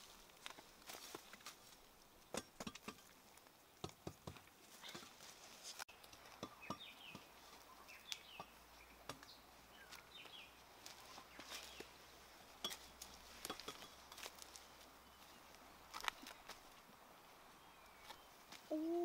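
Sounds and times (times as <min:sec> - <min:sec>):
birds chirping: 0:05.9 - 0:19.0.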